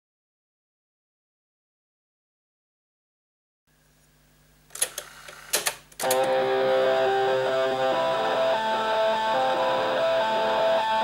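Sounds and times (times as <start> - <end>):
sharp clicks: 4.7 - 6.4
distorted cassette music playback: 4.8 - 11.0.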